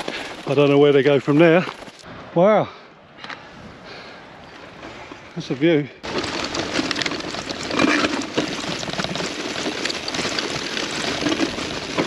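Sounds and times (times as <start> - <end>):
bike tyres on rough grass: 0.0 - 2.1, 4.8 - 12.0
bike rattles and knocks: 6.0 - 12.0.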